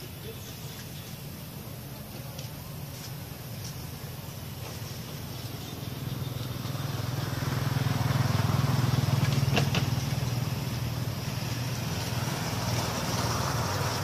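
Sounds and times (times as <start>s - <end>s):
vehicle engine passing by: 4.8s - 14.0s.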